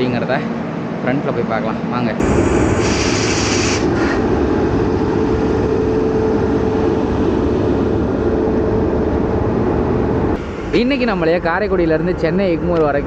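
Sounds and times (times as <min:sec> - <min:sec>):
high hiss: 0:02.2 - 0:04.2.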